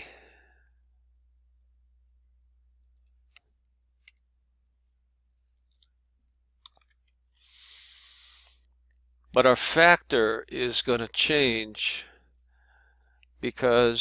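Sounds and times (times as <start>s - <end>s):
soft rush of breath: 7.4s - 8.6s.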